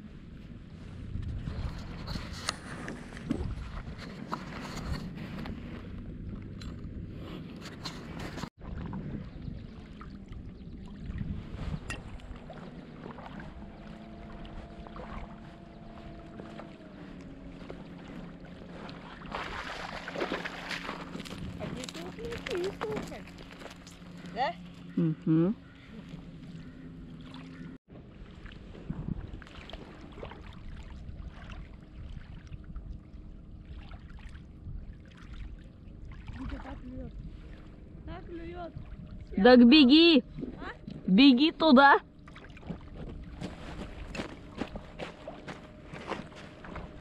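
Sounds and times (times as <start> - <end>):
rushing water and wind: 0.0 - 24.5
outboard motor running: 1.0 - 28.3, 29.1 - 47.0
low rumble: 4.8 - 47.0.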